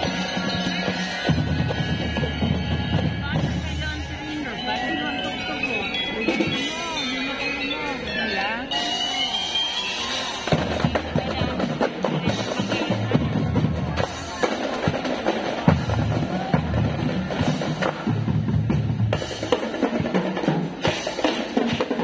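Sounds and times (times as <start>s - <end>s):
marching bass drums: 0.0s - 8.0s, 10.2s - 22.0s
bell lyre melody: 3.9s - 10.5s.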